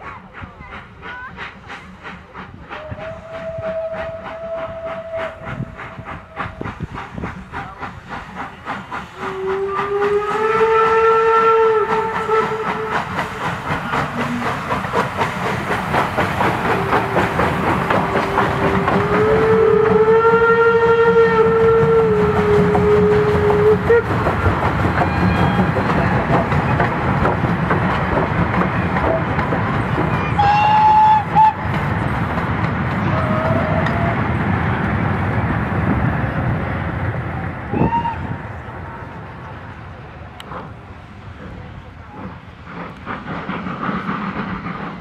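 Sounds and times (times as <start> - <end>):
steam locomotives chuffing: 0.0 - 45.0
steam whistles blowing: 2.7 - 6.9, 9.2 - 26.2, 30.2 - 31.7, 33.1 - 34.4, 37.6 - 38.4.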